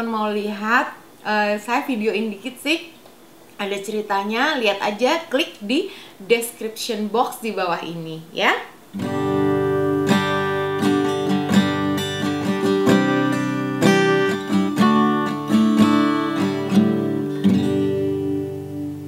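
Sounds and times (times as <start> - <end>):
acoustic guitar strumming: 8.9 - 19.0.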